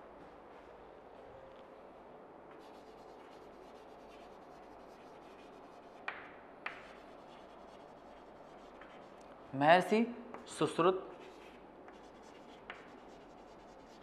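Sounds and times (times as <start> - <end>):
chalk scratching on chalkboard: 2.5 - 9.3, 11.0 - 14.0.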